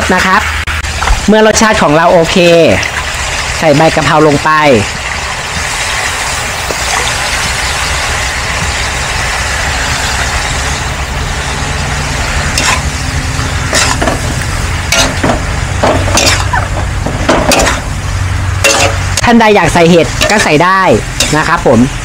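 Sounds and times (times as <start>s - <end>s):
food sizzling in a wok: 0.0s - 22.0s
metal ladle scraping a wok: 12.2s - 18.0s, 18.6s - 19.3s, 20.1s - 21.6s.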